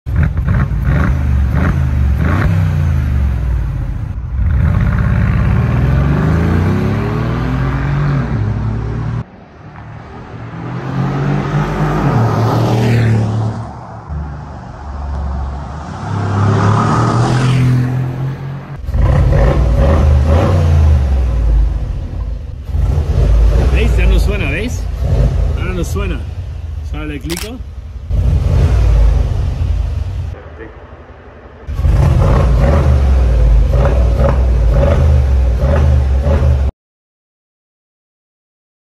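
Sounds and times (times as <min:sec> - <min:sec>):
car engine revving at standstill: 0:00.1 - 0:09.2, 0:27.3 - 0:30.2, 0:31.7 - 0:36.7.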